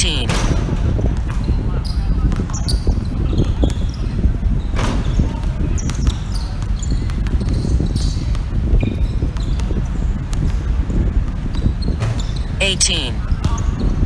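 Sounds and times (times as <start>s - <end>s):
players' voices: 0.0s - 0.3s, 12.6s - 13.2s.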